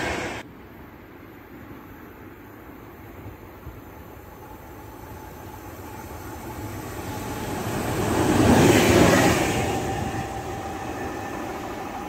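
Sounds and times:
train wheels rumbling on rails: 3.1s - 12.0s.

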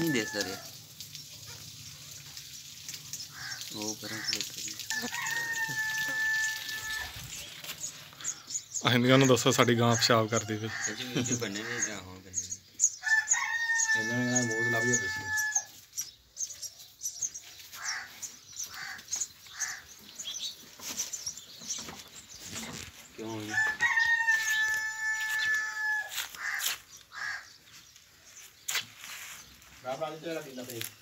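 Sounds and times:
rooster crowing: 0.0s - 0.6s, 4.9s - 7.2s, 13.0s - 15.7s, 23.4s - 27.4s.

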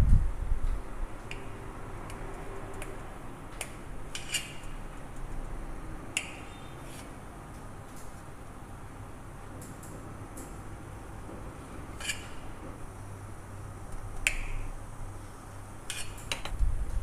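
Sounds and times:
knife scraping steel plate: 4.1s - 4.8s, 6.2s - 7.2s, 11.9s - 12.6s, 15.9s - 16.5s.

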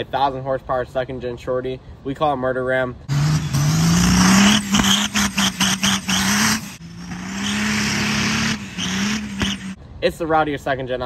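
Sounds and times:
diesel engine revving hard: 3.0s - 9.8s.

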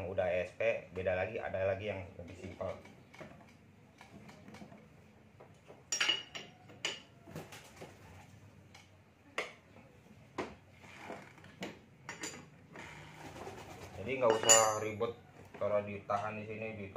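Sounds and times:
wrenches clinking on metal: 14.2s - 15.0s.

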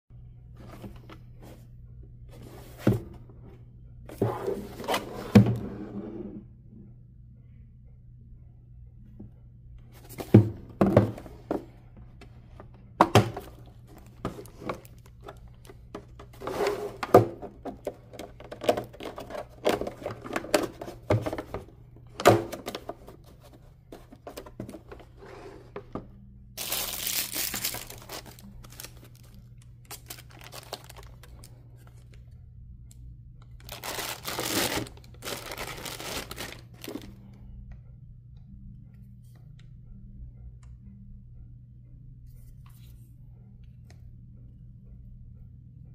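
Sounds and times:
plastic wrapping crinkling and tearing: 26.6s - 31.5s, 33.6s - 37.1s.

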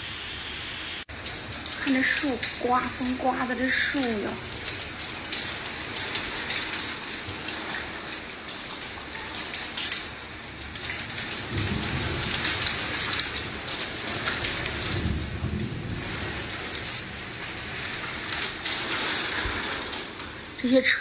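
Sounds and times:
heavy rain pouring: 0.0s - 21.0s
low rumble: 10.4s - 20.5s.

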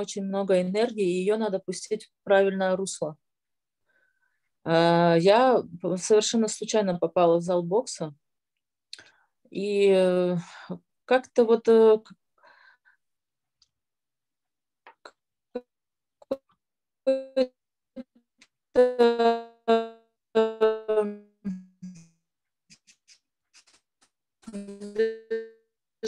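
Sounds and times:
held buzzing tones: 24.4s - 25.6s.

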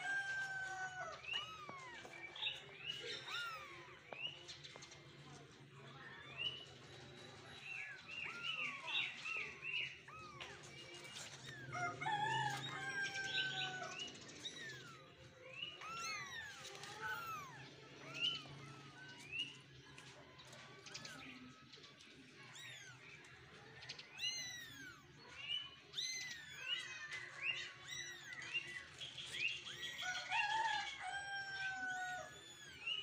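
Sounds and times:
kittens mewing: 3.1s - 4.1s, 14.4s - 19.7s, 31.4s - 33.0s.

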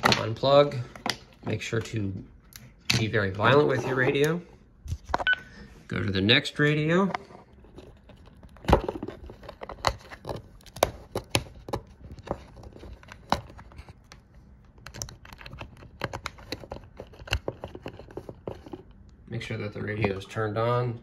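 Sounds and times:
plastic radio being handled: 6.9s - 19.0s.

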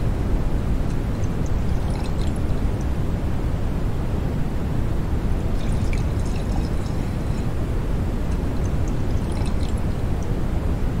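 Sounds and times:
beer fizzing in a glass: 1.2s - 2.6s, 5.5s - 7.5s, 8.3s - 10.0s.

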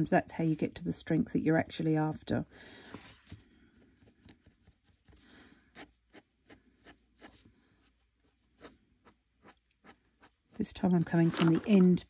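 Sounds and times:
paint marker scratching on paper: 4.0s - 10.6s.

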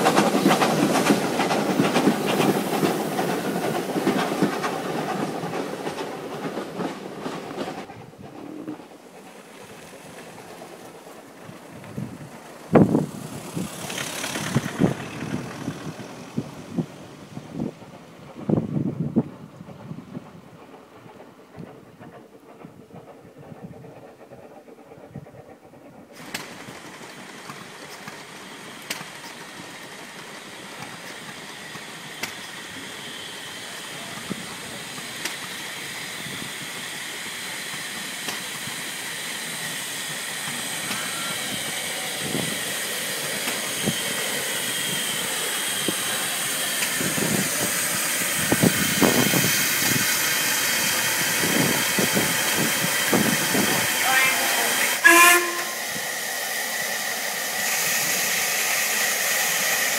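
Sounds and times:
steam hissing: 0.0s - 59.9s
heavy low knocks of engines: 12.7s - 18.6s.

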